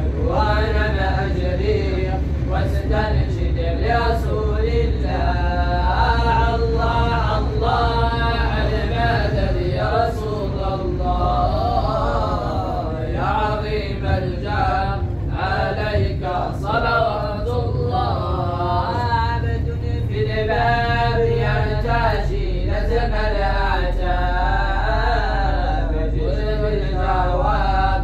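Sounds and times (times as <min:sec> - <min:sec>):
steady low hum: 0:00.0 - 0:28.0
person chanting: 0:00.1 - 0:28.0.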